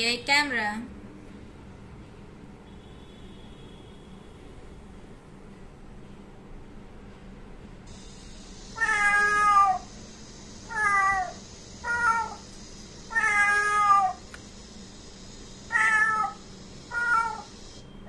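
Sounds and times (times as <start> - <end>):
cat meowing: 8.8 - 9.9, 10.7 - 12.4, 13.1 - 14.2, 15.7 - 17.5.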